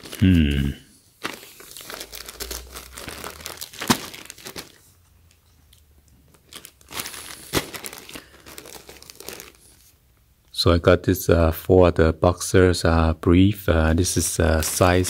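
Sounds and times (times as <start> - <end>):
plastic bags crinkling: 0.0 - 5.6, 6.2 - 10.0, 14.2 - 15.0
sharp plastic crackles: 1.2 - 5.4, 6.1 - 9.8.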